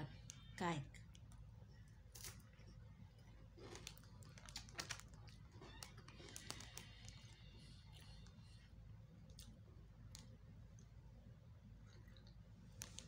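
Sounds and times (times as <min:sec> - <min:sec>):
low room hum: 0:00.0 - 0:13.0
biscuit crunching when chewed: 0:01.1 - 0:08.4.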